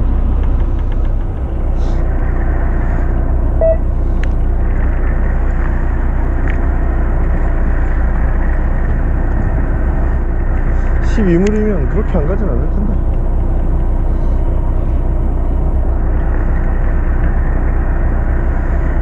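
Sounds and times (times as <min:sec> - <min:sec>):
boat engine low rumble: 0:00.0 - 0:19.0.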